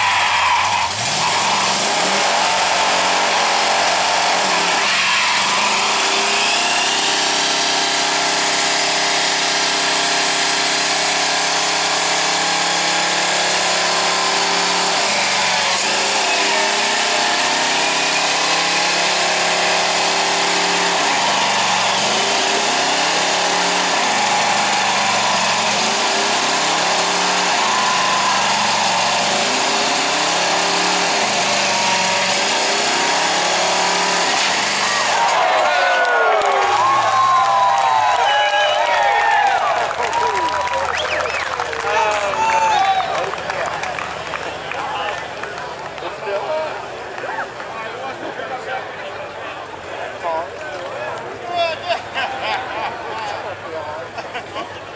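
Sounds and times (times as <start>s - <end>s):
engine revving at high revs: 0.0s - 38.2s.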